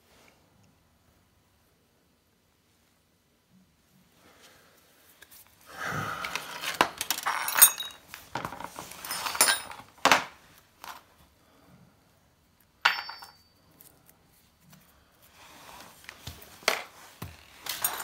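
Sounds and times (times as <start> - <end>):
sharp ringing clink: 12.8 - 13.6.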